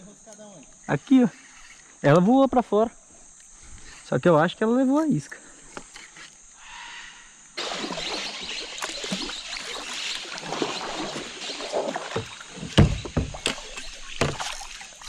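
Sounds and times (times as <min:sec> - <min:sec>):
paddle splashing in water: 0:07.6 - 0:15.0
sharp knocks on kayak: 0:10.6 - 0:14.6.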